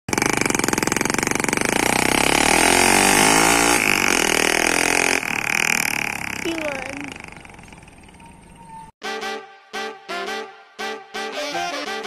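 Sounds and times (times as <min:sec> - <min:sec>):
motorcycle engine accelerating: 0:00.1 - 0:09.0.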